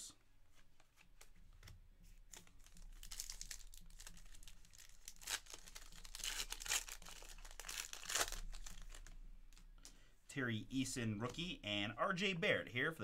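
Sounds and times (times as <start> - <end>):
wrapper crinkling and ripping: 2.3 - 9.7.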